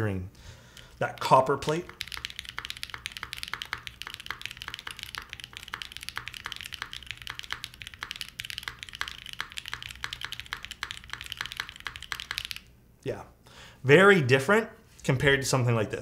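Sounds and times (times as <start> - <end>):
fast mechanical keyboard typing: 0.8 - 12.7.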